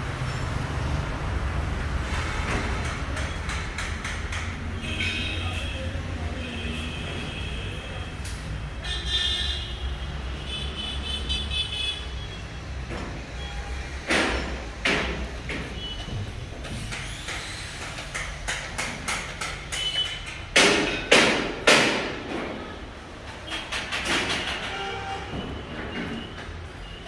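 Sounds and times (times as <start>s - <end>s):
construction bangs: 14.0s - 17.2s, 18.3s - 22.8s.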